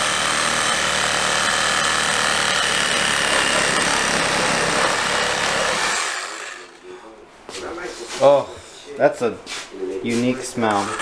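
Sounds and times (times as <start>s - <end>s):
reciprocating saw cutting: 0.0s - 6.9s, 10.6s - 11.0s.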